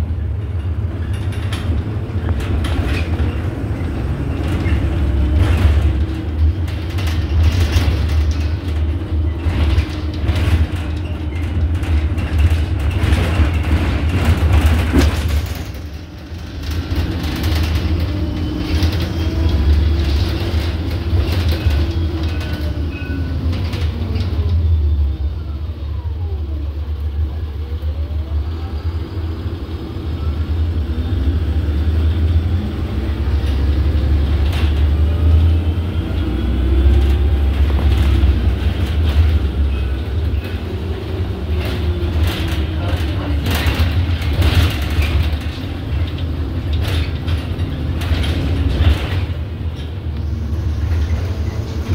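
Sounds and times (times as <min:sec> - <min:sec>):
bus drivetrain and road rumble: 0:00.0 - 0:51.9.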